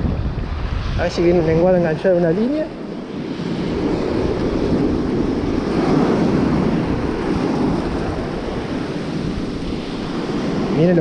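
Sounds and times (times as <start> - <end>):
surf washing over shallows: 0.0 - 11.0
wind buffeting microphone: 0.0 - 11.0.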